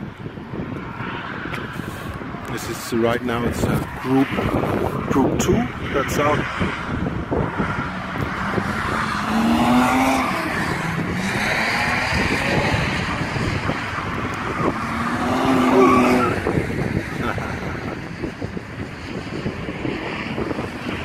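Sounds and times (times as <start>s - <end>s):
car engines revving: 0.0s - 21.0s
tyres squealing: 14.5s - 16.5s.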